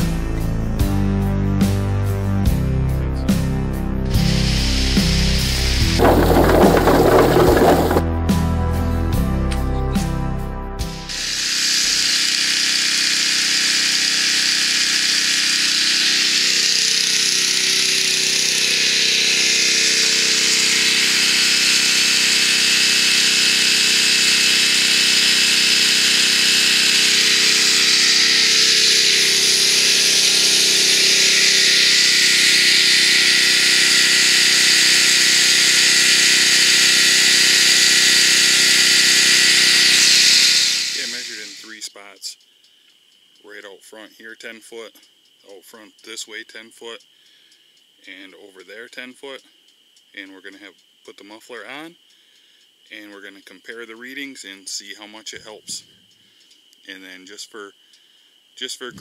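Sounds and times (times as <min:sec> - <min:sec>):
generator engine droning: 0:02.5 - 0:08.1, 0:11.1 - 0:41.7.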